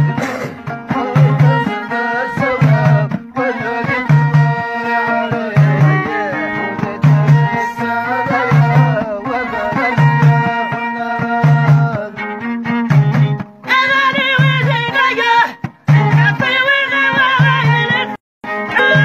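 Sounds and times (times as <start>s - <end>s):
frame drum beat: 0.0s - 18.1s, 18.8s - 19.0s
plucked lute melody: 18.5s - 19.0s.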